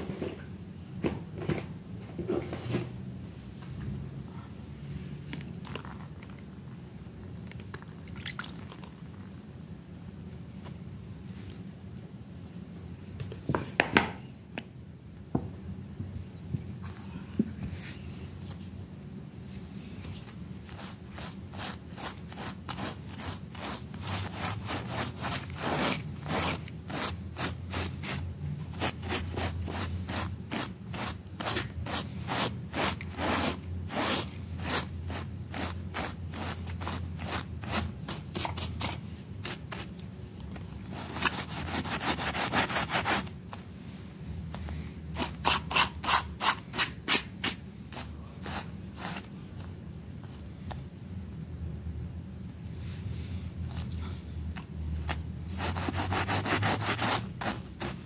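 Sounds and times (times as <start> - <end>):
scrub brush scrubbing wet rug: 20.6 - 39.9, 55.5 - 58.0.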